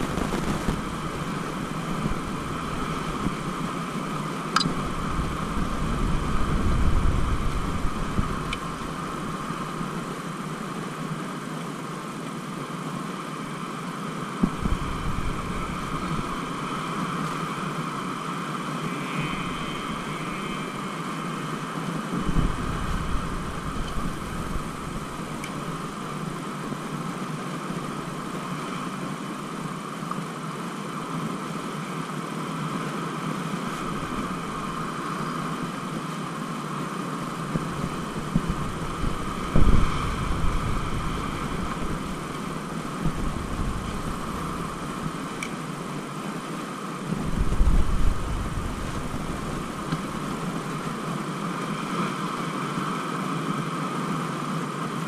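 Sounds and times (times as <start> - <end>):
wind on microphone: 0.0 - 10.8, 14.4 - 29.1, 37.2 - 46.2, 47.0 - 53.0.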